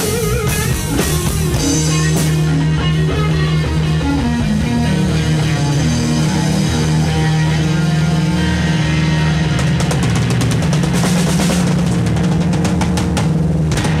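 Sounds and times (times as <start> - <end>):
electric guitar sustained notes: 0.0 - 14.0
rock drums: 0.0 - 14.0
rapid cymbal and snare hits: 8.9 - 14.0.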